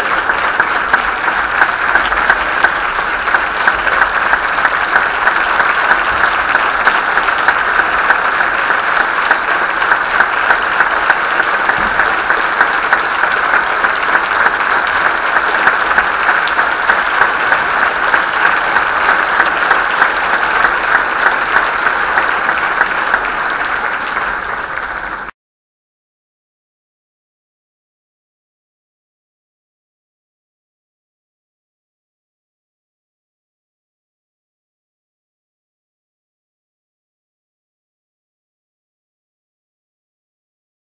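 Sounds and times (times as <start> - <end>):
audience applauding: 0.0 - 25.4.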